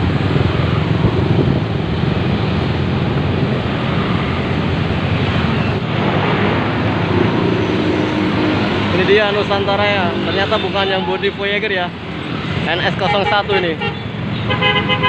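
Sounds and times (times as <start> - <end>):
wind buffeting microphone: 0.0 - 6.0
car engines: 0.0 - 15.0.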